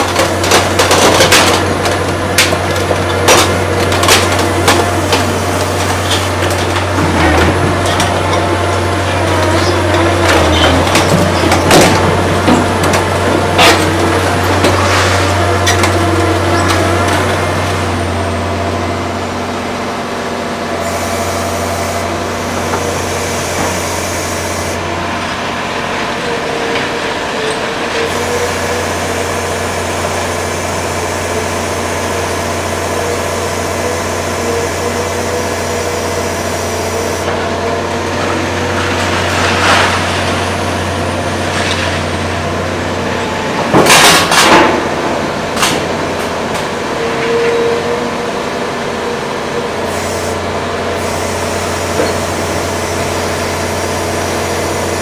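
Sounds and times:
diesel machinery humming: 0:00.0 - 0:55.0.

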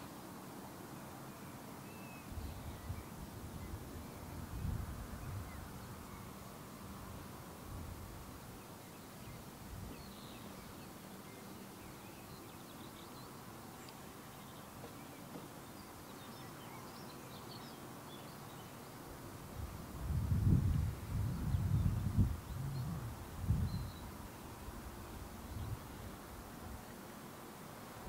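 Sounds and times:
faint bird chirps: 0:01.0 - 0:06.5, 0:21.2 - 0:24.8.

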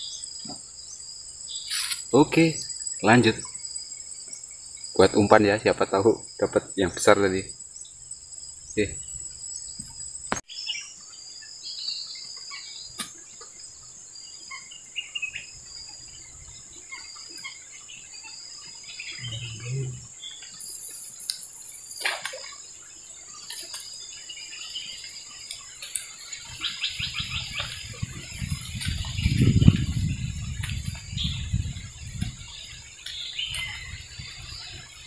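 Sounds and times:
high-pitched insect chorus: 0:00.0 - 0:35.0
bird chirps: 0:08.6 - 0:35.0.

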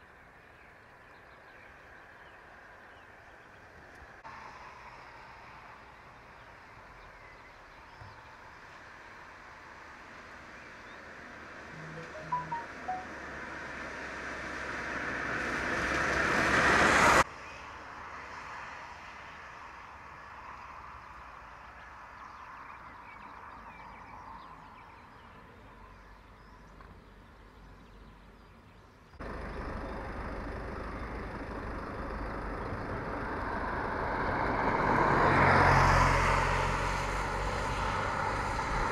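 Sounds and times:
faint outdoor background noise: 0:00.0 - 0:38.9
road vehicle passing: 0:08.6 - 0:19.6, 0:29.2 - 0:38.9.

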